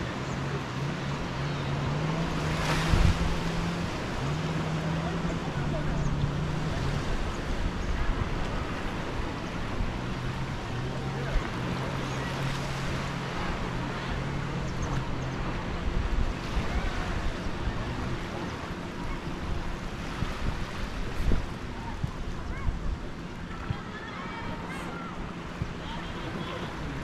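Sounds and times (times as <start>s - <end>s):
waves washing onto beach: 0.0s - 27.0s.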